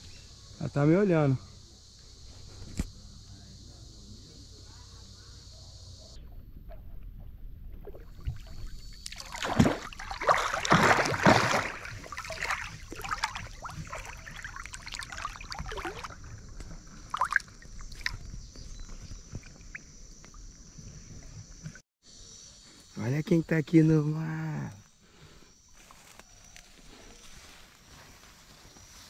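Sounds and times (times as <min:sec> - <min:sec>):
water splashing around swimmer: 0:07.8 - 0:18.4.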